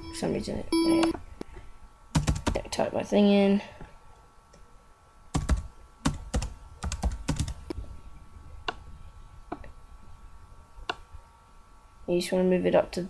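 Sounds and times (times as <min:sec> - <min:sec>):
typing on computer keyboard: 0:02.2 - 0:02.6, 0:05.4 - 0:07.6.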